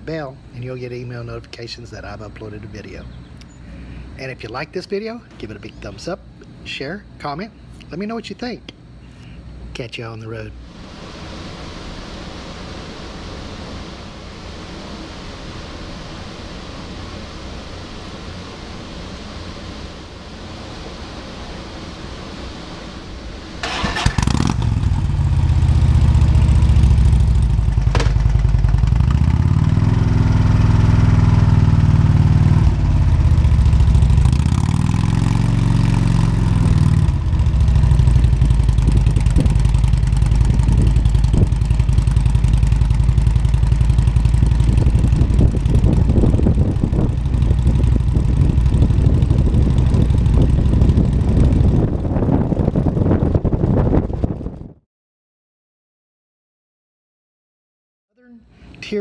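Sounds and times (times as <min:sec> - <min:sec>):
motorcycle engine starting and revving: 0:23.6 - 0:54.8.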